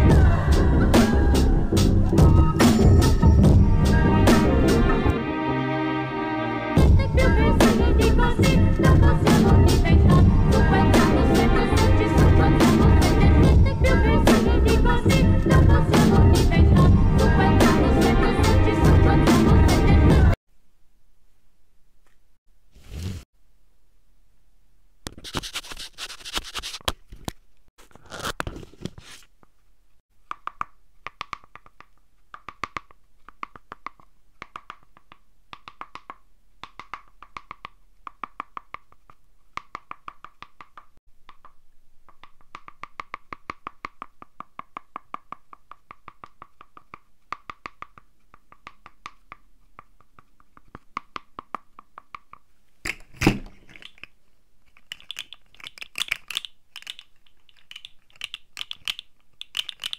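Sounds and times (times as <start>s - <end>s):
paper rustling: 25.1s - 29.4s
paper jaws clicking and crunching: 54.7s - 59.9s.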